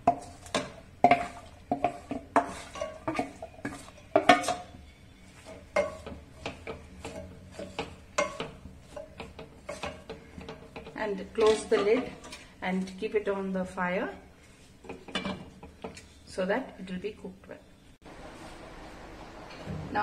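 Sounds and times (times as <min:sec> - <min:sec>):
wooden spoon knocking steel basin: 0:00.0 - 0:12.3.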